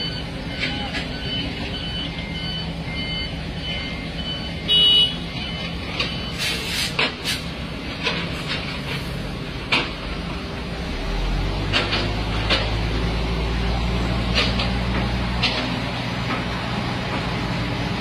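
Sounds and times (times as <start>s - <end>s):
loud high-pitched beep: 0.0s - 6.4s
reversing alarm beeping: 0.0s - 6.6s
diesel engines droning: 0.0s - 18.0s.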